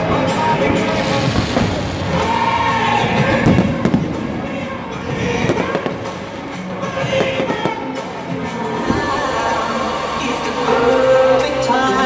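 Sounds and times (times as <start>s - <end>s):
fireworks bangs and crackles: 0.0s - 9.3s
background music: 0.0s - 12.0s.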